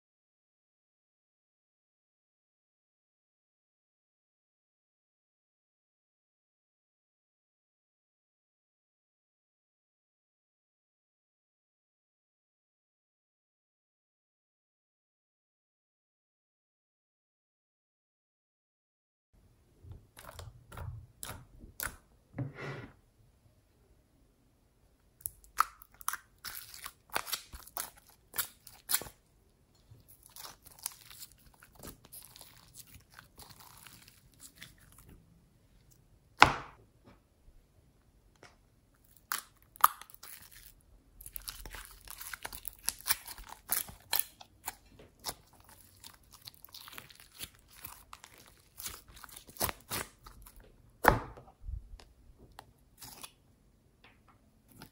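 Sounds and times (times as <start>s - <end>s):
slime squelching by hand: 25.2s - 29.2s, 29.8s - 35.2s, 39.0s - 50.6s, 53.0s - 53.4s.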